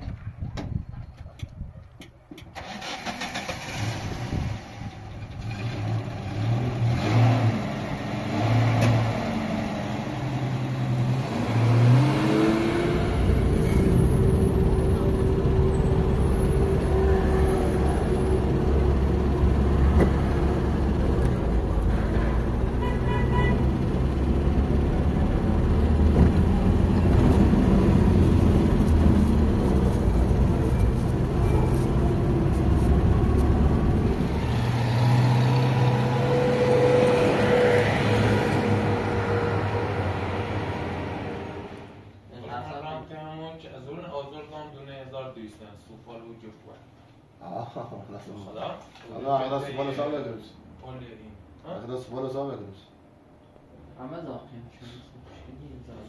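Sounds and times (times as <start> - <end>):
vehicle engine idling and revving: 2.6 - 42.2.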